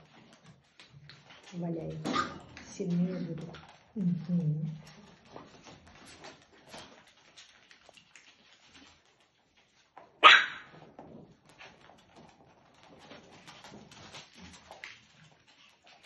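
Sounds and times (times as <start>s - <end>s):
puppy yap: 10.2s - 10.7s.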